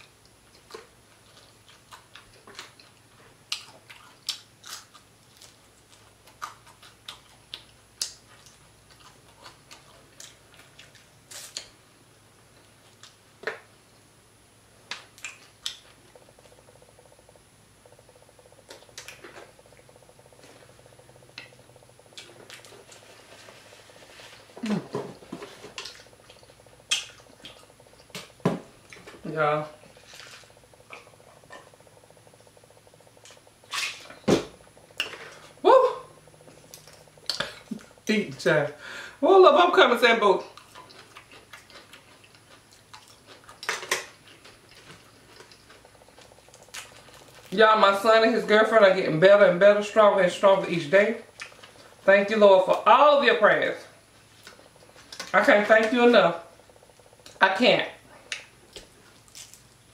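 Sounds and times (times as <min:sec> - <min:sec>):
chewing: 0:00.0 - 0:11.8, 0:14.9 - 0:29.2, 0:29.8 - 0:35.6, 0:36.2 - 0:38.1, 0:40.4 - 0:47.6, 0:51.2 - 0:52.0, 0:54.2 - 0:55.4, 0:58.0 - 0:59.9
small clicks and crackles: 0:58.2 - 0:59.8.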